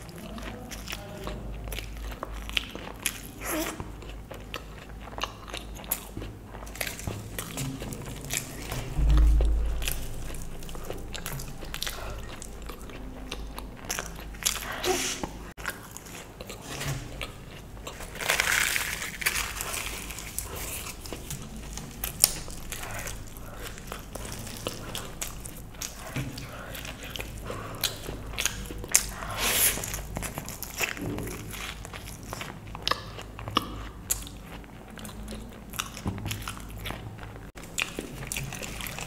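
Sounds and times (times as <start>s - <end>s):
wet chewing and lip-smacking: 0.0s - 39.0s
dull low thump: 8.4s - 12.9s.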